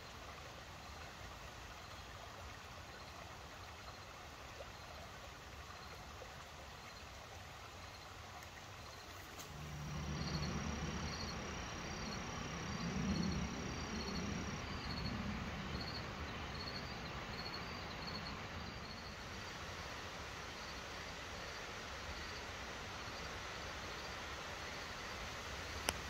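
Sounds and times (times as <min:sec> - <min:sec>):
crickets chirping: 0:05.6 - 0:06.0, 0:07.8 - 0:08.1, 0:08.8 - 0:26.0
low rumble: 0:09.4 - 0:19.2.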